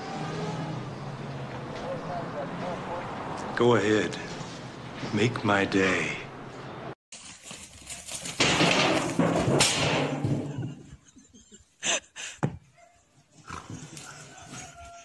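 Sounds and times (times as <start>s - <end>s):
loud scuffling: 7.2s - 10.9s
sheep butting metal basin: 8.0s - 10.9s.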